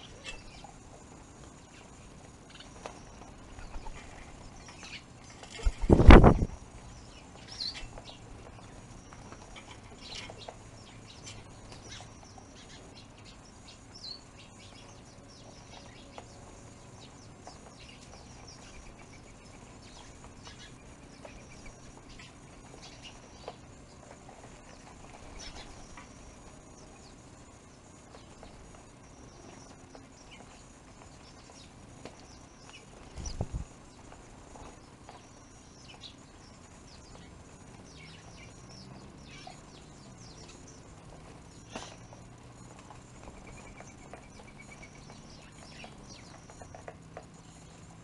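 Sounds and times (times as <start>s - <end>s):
small birds chirping: 0.0s - 48.0s
wing flutters: 2.5s - 6.8s.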